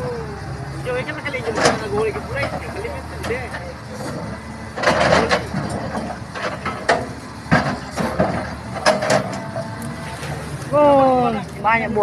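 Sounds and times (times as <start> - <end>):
excavator engine running: 0.0 - 12.0.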